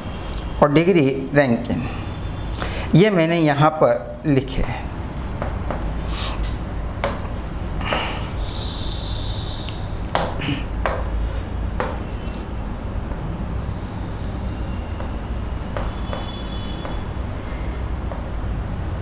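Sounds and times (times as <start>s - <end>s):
steady low hum: 0.0s - 19.0s
stylus tapping on display board: 5.4s - 5.9s, 7.0s - 7.3s, 10.1s - 11.2s, 11.8s - 12.0s, 15.0s - 17.3s, 18.1s - 18.4s.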